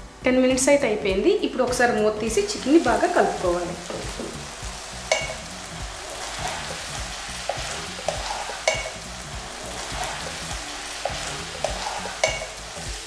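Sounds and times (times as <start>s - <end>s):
chicken sizzling in a pan: 2.2s - 13.0s
spatula knocking against pan: 5.1s - 5.5s, 7.5s - 9.0s, 11.0s - 12.6s.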